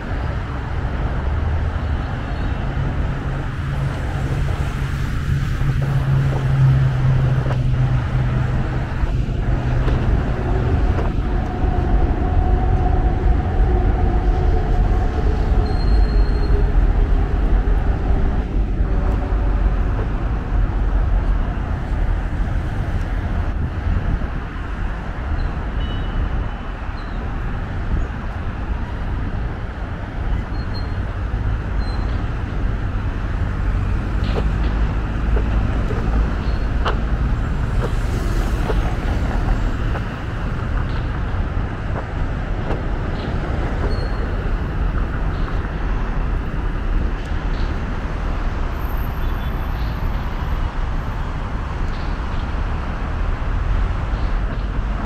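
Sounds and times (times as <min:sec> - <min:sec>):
heavy highway traffic: 0:00.0 - 0:55.0.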